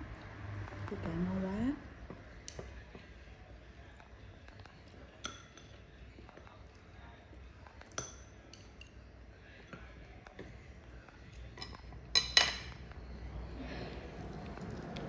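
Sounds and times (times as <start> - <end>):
chopsticks clinking on ceramic bowl: 5.2 - 5.8, 11.5 - 12.8.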